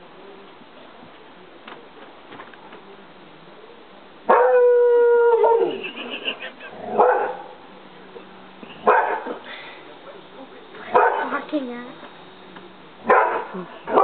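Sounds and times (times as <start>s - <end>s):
dog howling: 4.3s - 5.9s.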